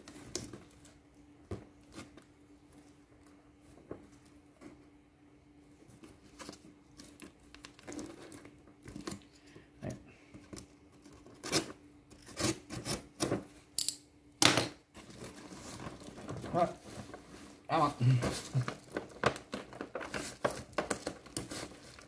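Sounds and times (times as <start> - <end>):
knife slitting packing tape: 11.4 - 13.1.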